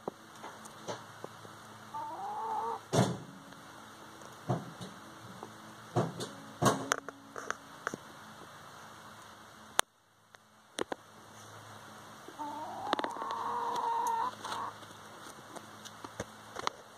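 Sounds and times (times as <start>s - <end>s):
hen calling: 1.9s - 2.8s, 12.3s - 14.8s.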